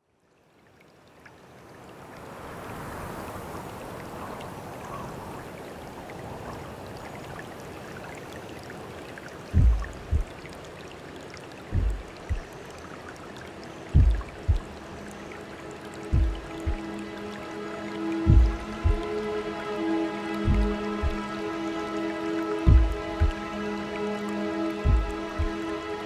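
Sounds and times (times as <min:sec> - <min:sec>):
flowing water rushing: 0:00.4 - 0:26.0
deep thumps: 0:09.6 - 0:10.3, 0:11.7 - 0:12.5, 0:14.0 - 0:14.7, 0:16.1 - 0:16.8, 0:18.3 - 0:19.0, 0:20.5 - 0:21.2, 0:22.7 - 0:23.4, 0:24.9 - 0:25.6.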